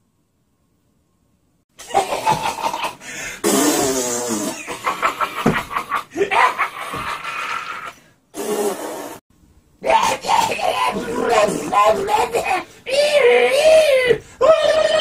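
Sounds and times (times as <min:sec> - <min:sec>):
raspy demonic vocalizing: 0:09.8 - 0:14.2.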